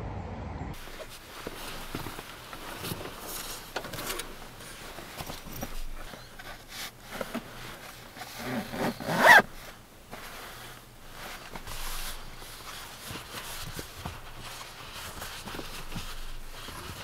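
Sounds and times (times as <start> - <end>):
rustling and clicking handling noises: 0.8 - 17.0
zipper pulled quickly: 8.4 - 9.5.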